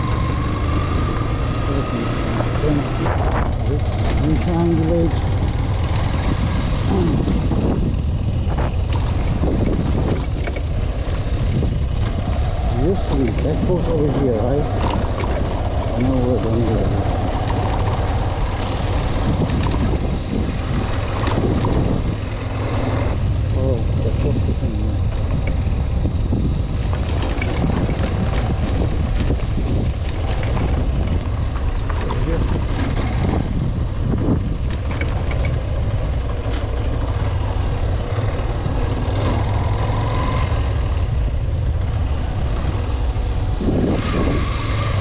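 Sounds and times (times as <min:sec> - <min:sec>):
motorcycle engine running: 0:00.0 - 0:45.0
wind rushing over microphone: 0:00.0 - 0:45.0.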